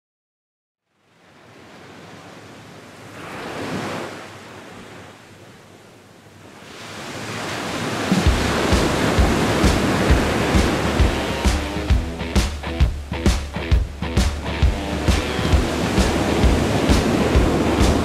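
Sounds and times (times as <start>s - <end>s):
surf breaking on beach: 1.2s - 5.2s, 6.5s - 18.0s
music with low beat: 8.1s - 18.0s.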